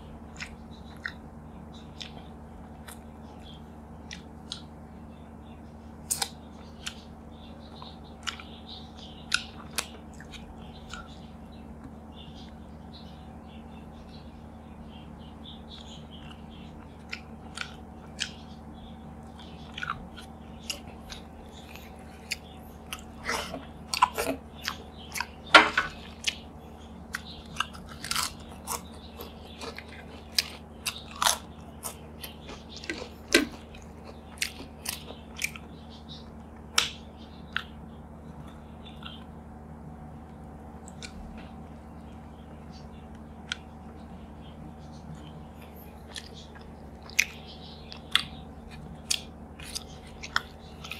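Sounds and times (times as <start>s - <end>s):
steady low hum: 0.0s - 50.9s
potato chips crunching: 27.1s - 35.7s.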